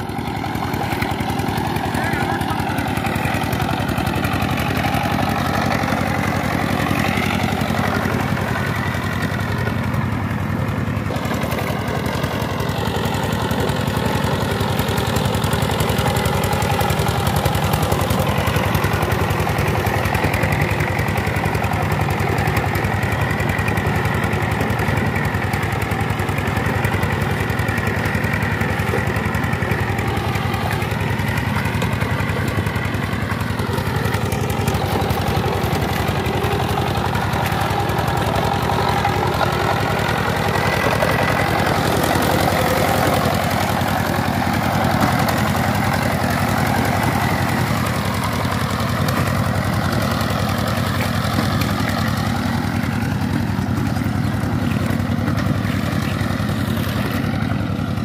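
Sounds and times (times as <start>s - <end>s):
diesel engine running steadily: 0.0s - 58.0s
tractor churning through mud: 0.0s - 58.0s.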